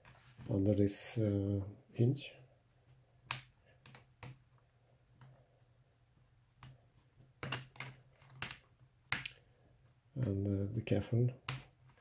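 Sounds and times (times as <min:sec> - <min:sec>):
laptop cover clicking and snapping: 0:03.3 - 0:04.4, 0:07.4 - 0:09.3.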